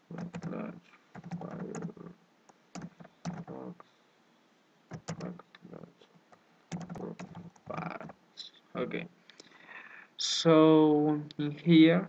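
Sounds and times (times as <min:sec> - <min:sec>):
typing on computer keyboard: 0:00.1 - 0:02.0, 0:02.8 - 0:03.6, 0:04.9 - 0:05.4, 0:06.7 - 0:08.1.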